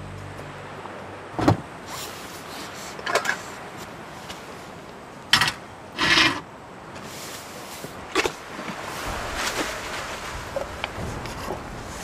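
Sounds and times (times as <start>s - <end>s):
camp cookware clattering: 5.3s - 6.4s.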